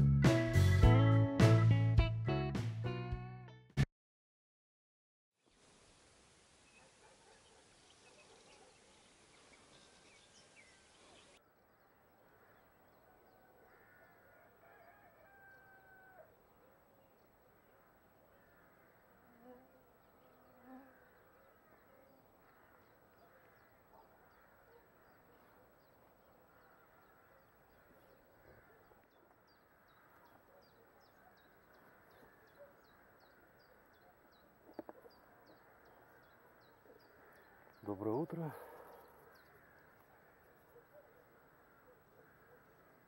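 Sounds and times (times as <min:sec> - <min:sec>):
distant rooster crowing: 0:12.9 - 0:16.4.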